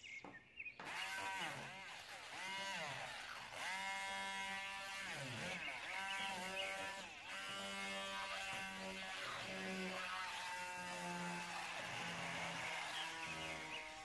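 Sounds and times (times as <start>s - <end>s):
immersion blender motor whirring: 0.8s - 14.0s.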